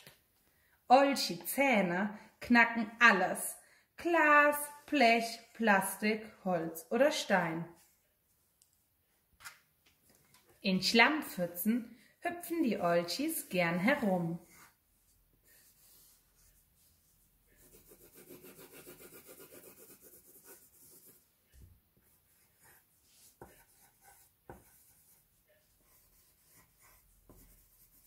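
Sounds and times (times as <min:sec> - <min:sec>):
pencil scratching on paper: 0:12.8 - 0:21.3, 0:22.0 - 0:28.0.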